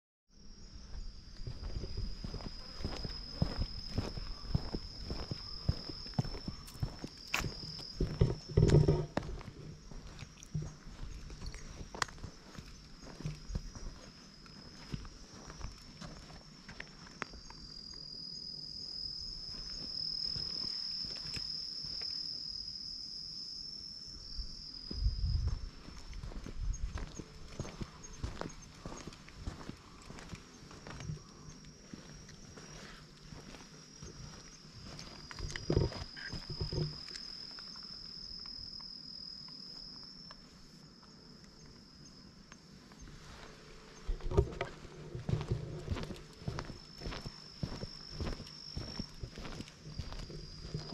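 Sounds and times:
insect buzzing: 0:00.3 - 0:50.9
close thumps and rustles: 0:44.0 - 0:46.7.

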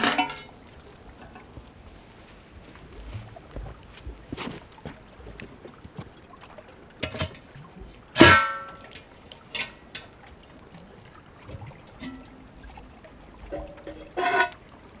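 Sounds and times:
metal clank ringing: 0:08.2 - 0:08.9.

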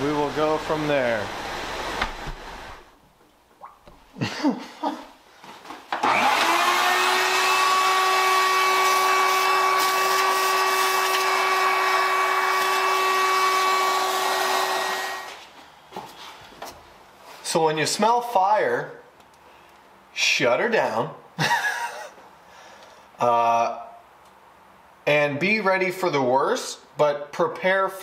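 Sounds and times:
shop vacuum running: 0:00.0 - 0:02.9, 0:05.9 - 0:15.5.

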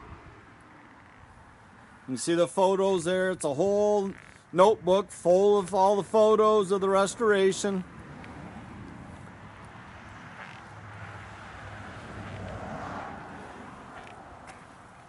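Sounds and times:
distant vehicle passing: 0:06.9 - 0:15.0.

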